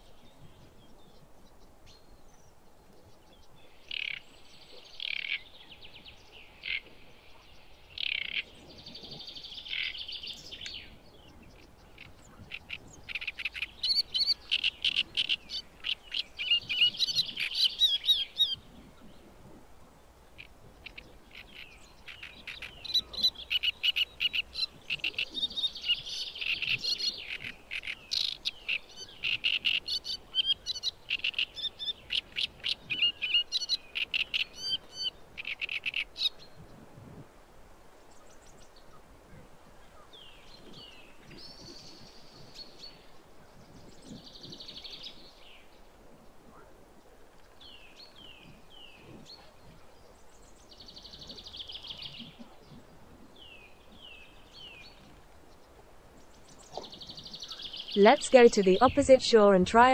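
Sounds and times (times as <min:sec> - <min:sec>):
bird chattering song: 0:11.5 - 0:18.6, 0:20.4 - 0:36.3.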